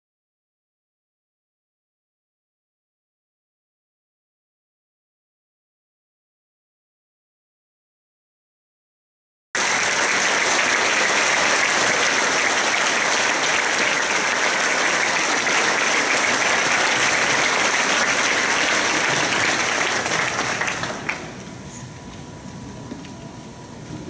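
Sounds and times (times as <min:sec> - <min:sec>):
audience applauding: 0:09.6 - 0:21.5.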